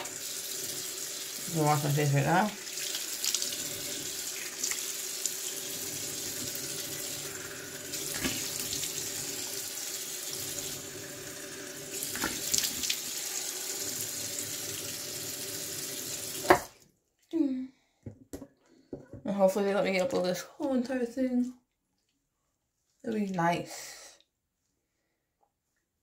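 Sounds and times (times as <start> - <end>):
sink tap running: 0.0 - 16.6
water splashing on face: 7.2 - 9.4, 11.9 - 13.4.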